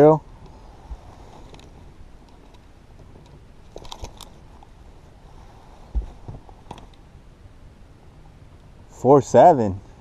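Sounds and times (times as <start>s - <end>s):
low steady hiss: 0.0s - 10.0s
small handling clicks and crackles: 1.3s - 4.7s.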